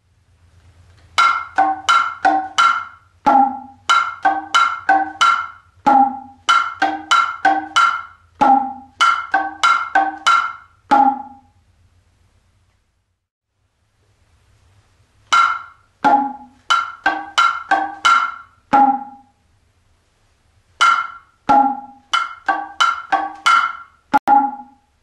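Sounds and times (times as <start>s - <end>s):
hand drums struck: 1.2s - 11.5s, 15.3s - 19.4s, 20.8s - 24.8s.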